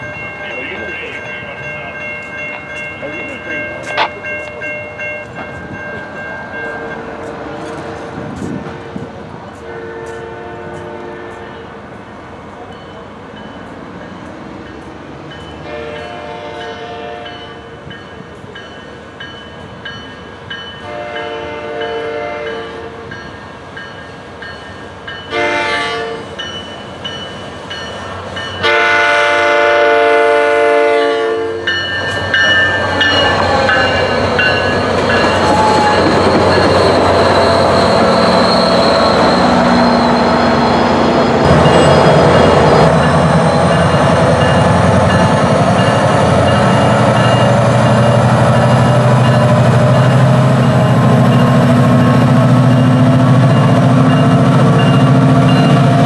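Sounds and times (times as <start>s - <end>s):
train wheels rumbling on rails: 0.0s - 56.0s
train horn blasts: 9.6s - 11.8s, 15.6s - 17.6s, 20.8s - 23.1s, 25.3s - 26.4s, 28.6s - 31.7s.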